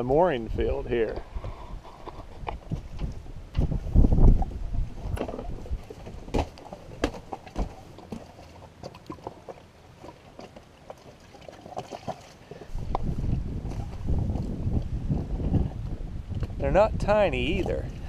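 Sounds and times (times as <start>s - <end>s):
wind buffeting microphone: 0.0s - 7.8s, 12.6s - 18.0s
faint water at hull: 0.0s - 18.0s.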